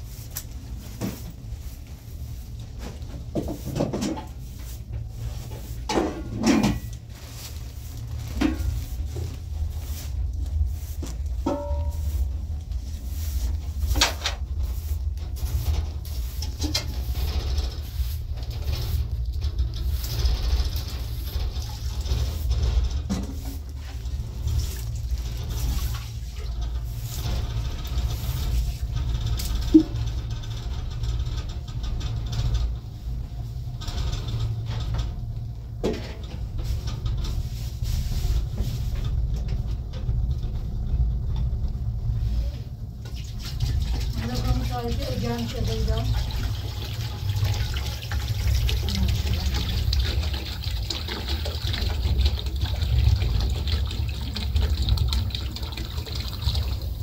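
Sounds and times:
broom sweeping across rug: 0.0s - 19.1s, 23.1s - 27.4s, 36.6s - 39.1s
steady low rumble: 0.0s - 57.0s
metal pot handled: 11.4s - 12.0s.

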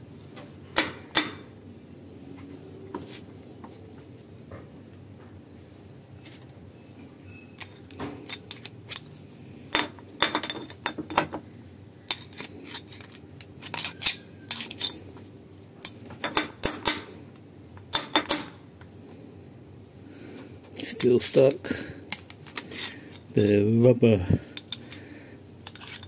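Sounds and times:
screwdriver scraping and clinking on metal: 7.3s - 11.4s, 12.1s - 15.0s, 22.1s - 23.4s, 24.5s - 25.0s, 25.6s - 26.0s.

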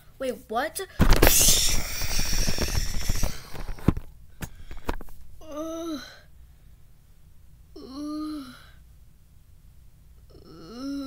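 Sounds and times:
loud hissing rush: 1.0s - 3.6s
person groaning: 7.8s - 8.6s, 10.3s - 11.0s.

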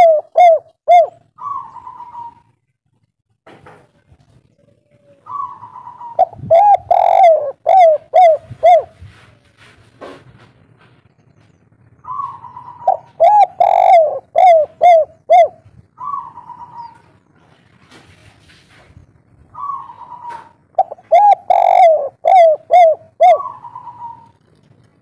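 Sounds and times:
dove cooing: 0.0s - 2.5s, 4.4s - 9.2s, 12.0s - 17.2s, 19.5s - 24.5s.

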